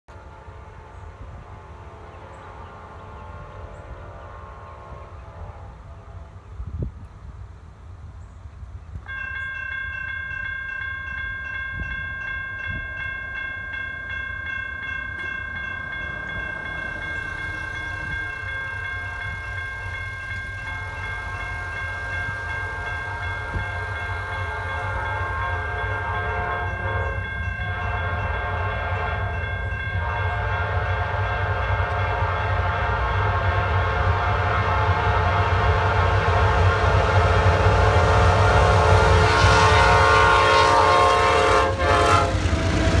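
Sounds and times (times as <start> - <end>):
train horn blasts: 0.1 - 6.9, 15.2 - 43.0
train rumble: 0.1 - 43.0
electronic crossing bells ringing: 9.1 - 30.8.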